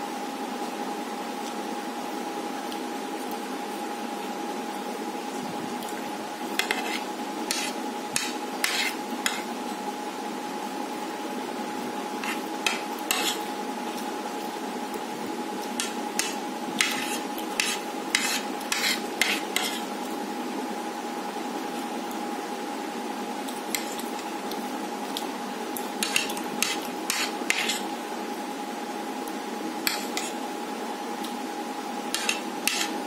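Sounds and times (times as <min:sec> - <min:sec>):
steady high hum: 0:00.0 - 0:33.0
spoon scraping ceramic plate: 0:06.6 - 0:09.4, 0:12.2 - 0:13.4, 0:15.8 - 0:19.9, 0:26.0 - 0:27.9, 0:29.9 - 0:30.4, 0:32.1 - 0:33.0.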